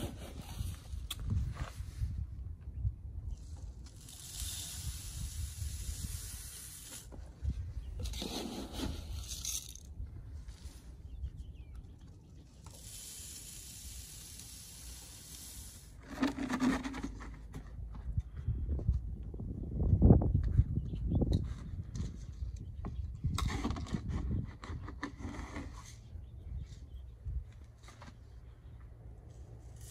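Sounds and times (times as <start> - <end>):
grain rushing down a pipe: 3.9 - 7.1, 12.7 - 16.7
can and bucket rustling and clattering: 8.0 - 9.9, 15.4 - 17.8, 23.2 - 26.0.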